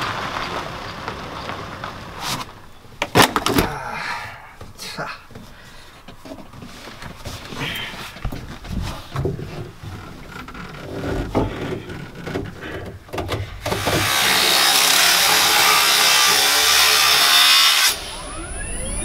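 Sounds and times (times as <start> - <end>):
angle grinder cutting steel: 13.7 - 18.6
rising whooshing tones: 17.9 - 19.0.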